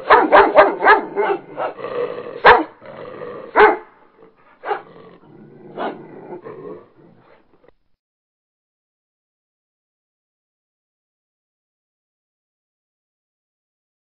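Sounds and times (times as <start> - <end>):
dog barking: 0.0 - 1.8, 2.4 - 2.8, 3.5 - 4.0, 4.6 - 5.0, 5.7 - 6.4.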